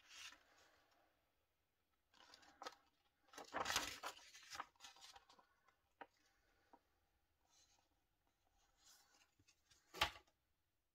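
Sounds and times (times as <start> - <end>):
paper rustling: 0.0 - 1.0, 2.1 - 6.8
paper crinkling: 2.1 - 6.3.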